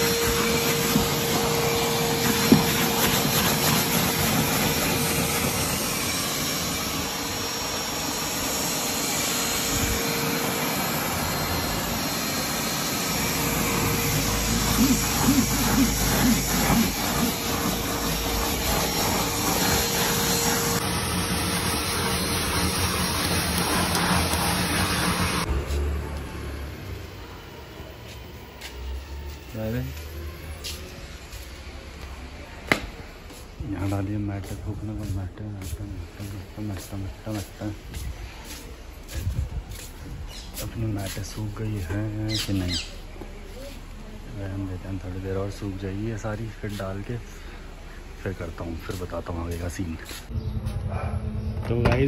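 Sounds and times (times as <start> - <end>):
nozzle sucking dirt off mat: 0.0 - 25.8
vacuum cleaner running: 0.0 - 51.5.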